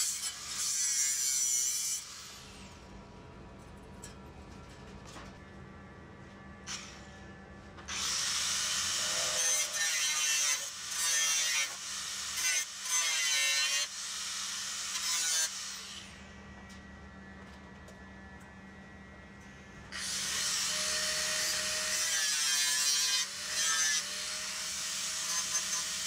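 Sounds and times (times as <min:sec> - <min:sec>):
angle grinder grinding steel: 0:07.9 - 0:14.0, 0:20.0 - 0:26.0.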